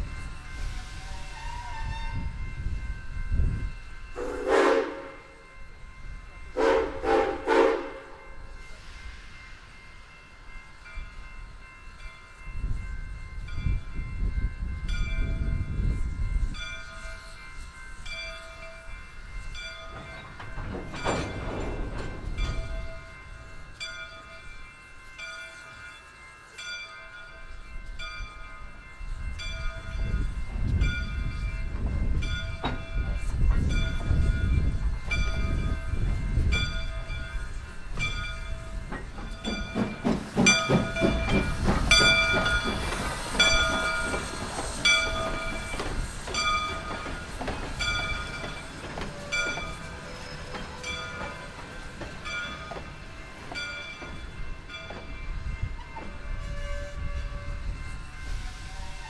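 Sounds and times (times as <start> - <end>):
locomotive bell ringing: 0.0 - 59.0
low rumble of locomotive: 0.0 - 59.0
steam locomotive whistle blasts: 0.6 - 2.4, 4.2 - 5.4, 6.5 - 9.2, 56.1 - 59.0.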